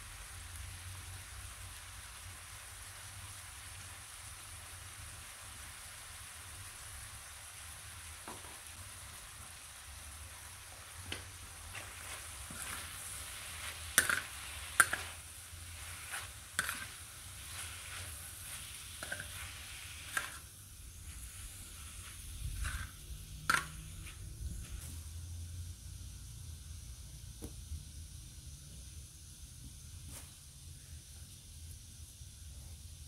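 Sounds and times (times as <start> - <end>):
liver sizzling in a pan: 0.0 - 24.1
metal spatula scraping pan: 11.7 - 20.5, 22.1 - 23.8.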